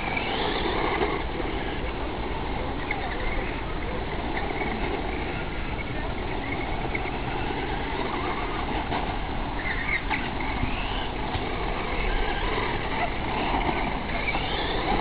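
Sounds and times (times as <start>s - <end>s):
electric motor whining: 10.4s - 15.0s.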